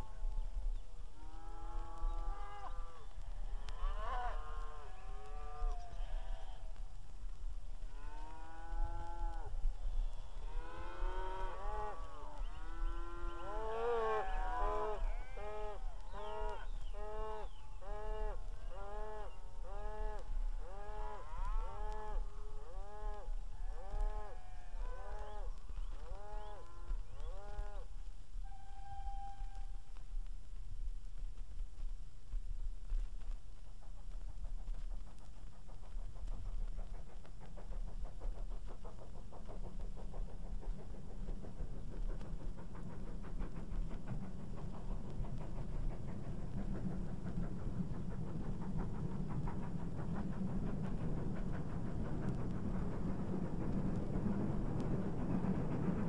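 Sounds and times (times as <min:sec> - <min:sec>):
steady whistle: 0:28.4 - 0:30.0.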